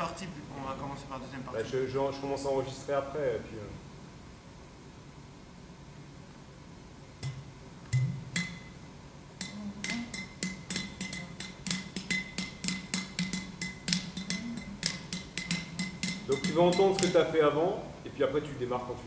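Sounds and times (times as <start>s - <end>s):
clay pot drum played by hand: 9.4s - 17.3s.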